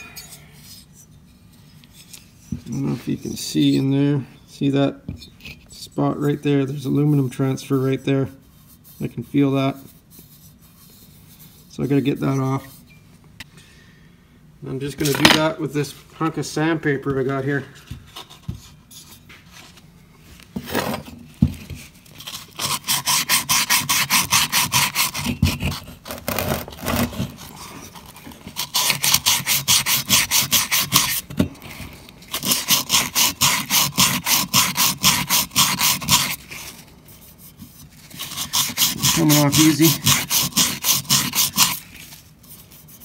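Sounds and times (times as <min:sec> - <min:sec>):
sandpaper scratching in cylinder: 0:22.2 - 0:31.2, 0:32.3 - 0:43.0.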